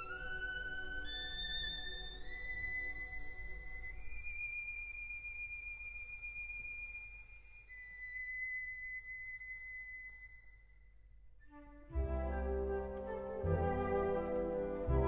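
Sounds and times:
quiet instrumental music: 0:00.0 - 0:07.0, 0:11.3 - 0:15.0.

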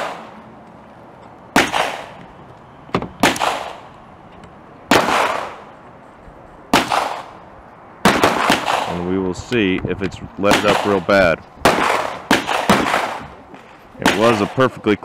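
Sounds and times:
gunshots with echoing tail: 0:00.0 - 0:00.4, 0:01.5 - 0:02.2, 0:03.2 - 0:03.9, 0:04.9 - 0:05.8, 0:06.7 - 0:07.4, 0:08.0 - 0:09.1, 0:10.5 - 0:14.8.

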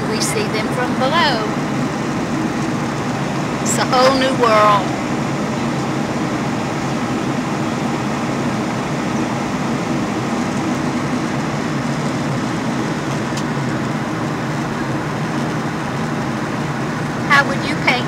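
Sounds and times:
jet airliner cabin drone: 0:00.0 - 0:18.0.

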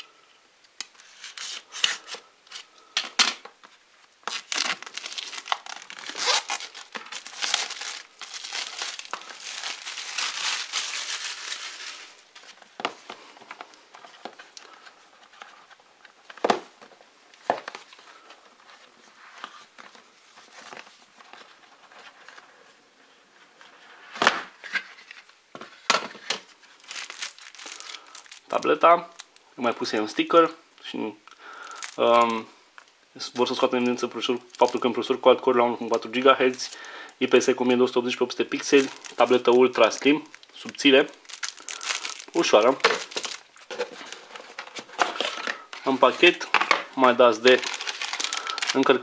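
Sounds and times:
plastic shrink wrap crinkling and tearing: 0:00.8 - 0:02.8, 0:04.2 - 0:12.6, 0:26.6 - 0:30.3, 0:31.5 - 0:35.2, 0:35.8 - 0:49.0
rustling: 0:03.6 - 0:16.2, 0:24.8 - 0:29.4, 0:38.5 - 0:49.0.

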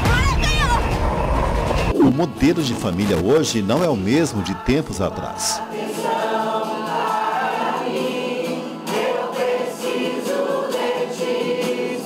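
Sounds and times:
group singing in unison: 0:04.0 - 0:12.0.

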